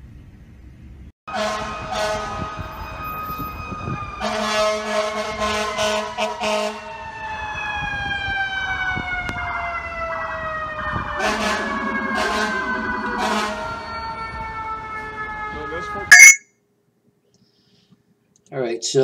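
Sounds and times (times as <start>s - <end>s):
air horn blasts: 1.3s - 2.4s, 16.1s - 16.4s
fire engine siren wailing: 1.3s - 16.4s.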